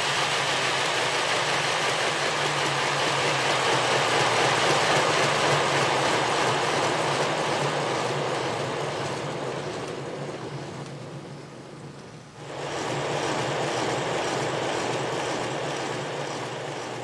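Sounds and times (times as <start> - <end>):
model locomotive motor whirring: 12.4 - 17.0.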